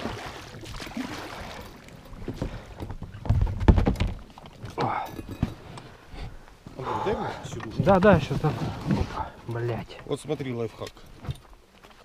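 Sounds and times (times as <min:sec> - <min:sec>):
rubbing and knocking on boat hull: 0:07.6 - 0:09.3.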